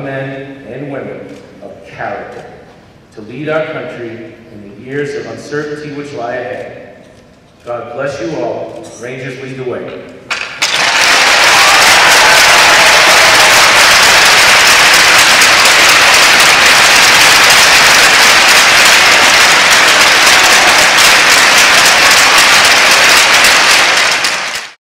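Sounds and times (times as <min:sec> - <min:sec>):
crowd applauding: 0:10.3 - 0:24.8.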